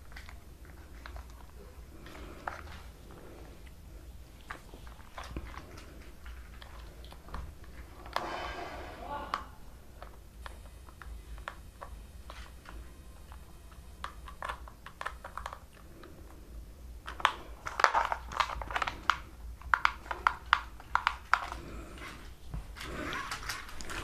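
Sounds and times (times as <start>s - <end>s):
wrapper crinkling: 17.0s - 22.1s.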